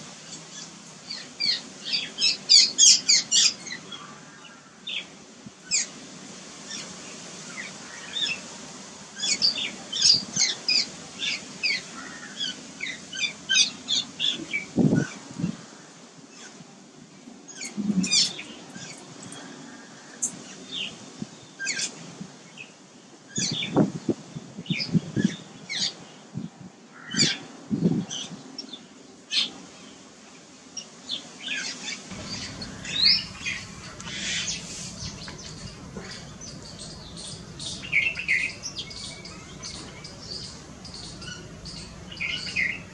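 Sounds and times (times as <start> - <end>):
birds chirping and squawking: 32.1 - 42.9
low thumps: 32.1 - 42.9
steady low hum: 32.1 - 42.9.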